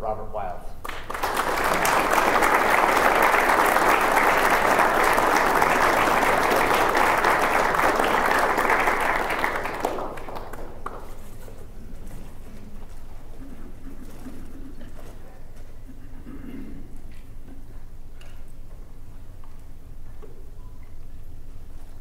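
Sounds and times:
audience applauding: 0.8s - 15.3s.

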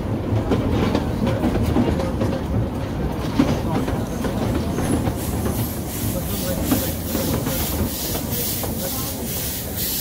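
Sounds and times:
steam locomotive exhaust beats: 4.2s - 10.0s
steam hissing: 5.2s - 10.0s.

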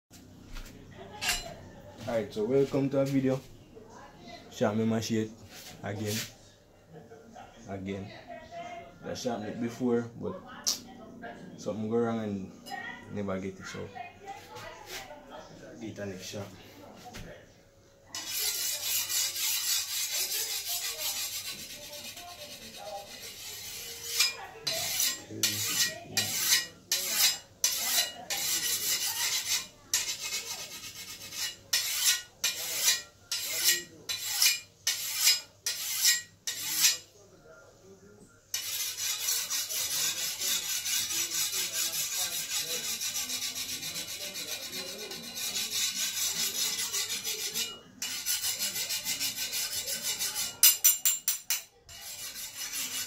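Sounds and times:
file rasping on blade: 18.2s - 37.0s, 38.5s - 53.0s.

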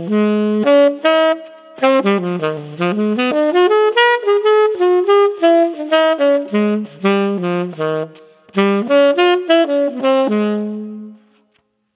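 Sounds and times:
tenor saxophone jazz line: 0.0s - 11.4s.

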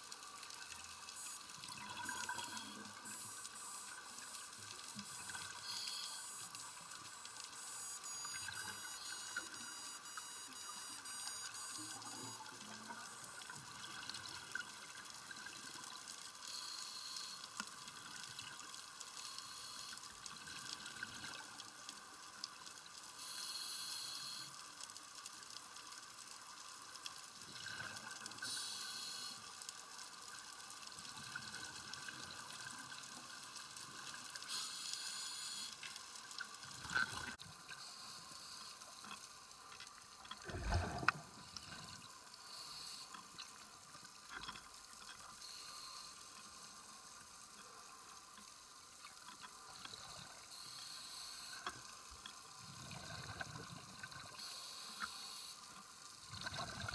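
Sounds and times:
steady hiss: 2.2s - 8.0s, 16.4s - 17.9s, 19.0s - 20.2s, 23.1s - 24.8s, 28.4s - 30.4s, 33.8s - 36.4s, 37.7s - 39.9s, 41.4s - 44.4s, 45.3s - 47.8s, 50.4s - 52.6s, 54.1s - 56.2s.

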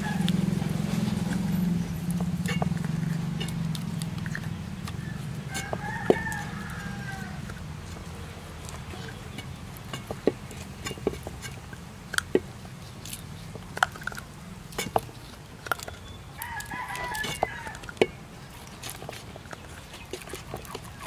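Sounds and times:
rooster crowing: 0.0s - 0.7s, 5.0s - 7.6s, 16.4s - 18.0s.

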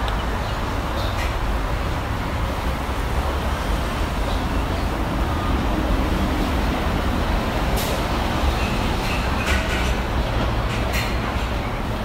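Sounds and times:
outdoor background rumble and hiss: 0.0s - 12.0s.

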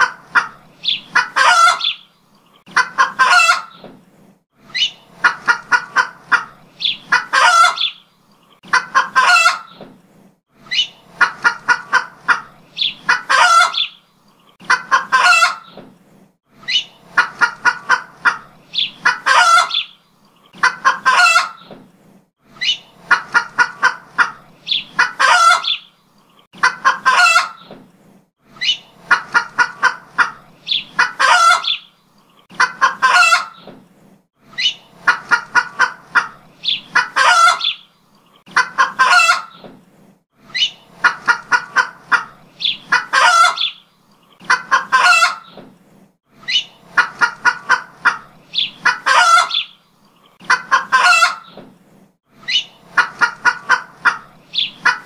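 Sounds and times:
hen cackling: 0.0s - 3.8s, 4.7s - 8.0s, 8.6s - 9.8s, 10.7s - 14.0s, 14.6s - 15.8s, 16.7s - 21.7s, 22.6s - 25.9s, 26.6s - 27.7s, 28.6s - 31.9s, 32.5s - 33.7s, 34.5s - 39.6s, 40.4s - 43.8s, 44.4s - 45.6s, 46.4s - 49.8s, 50.4s - 51.6s, 52.4s - 55.0s.

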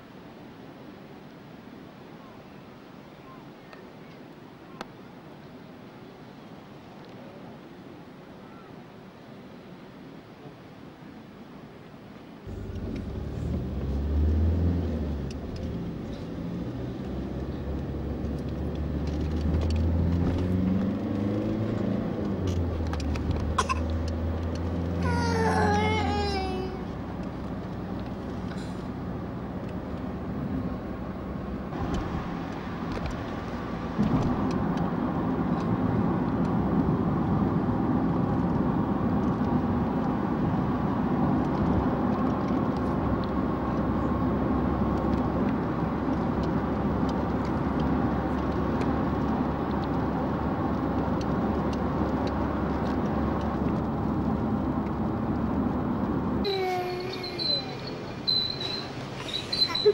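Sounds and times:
car cabin road and engine noise: 12.2s - 59.9s.

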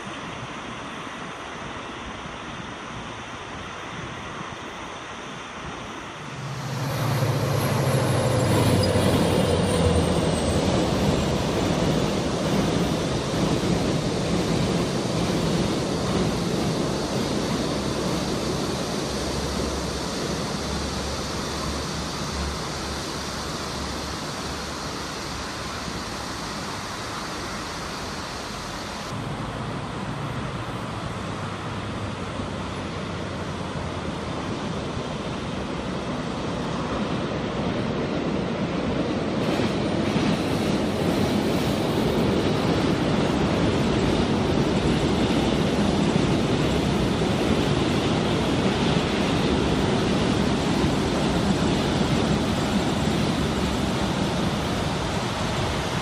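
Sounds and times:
diesel locomotive hum: 3.6s - 56.0s
train wheels rumbling on bridge: 6.2s - 27.2s, 34.0s - 56.0s.

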